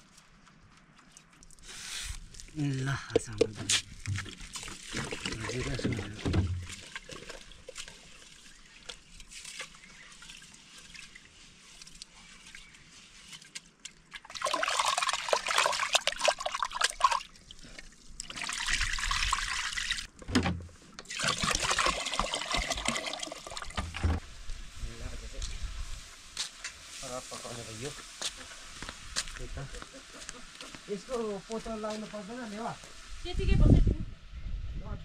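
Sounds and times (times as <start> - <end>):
water pouring: 1.0 - 12.6, 13.4 - 20.2, 21.0 - 24.3
faint hiss: 23.0 - 35.0.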